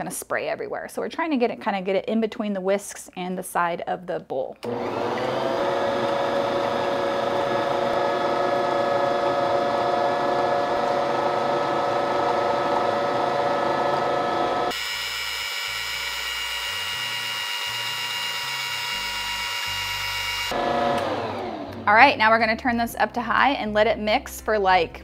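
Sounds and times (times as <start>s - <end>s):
stand mixer motor whining: 4.6s - 21.8s.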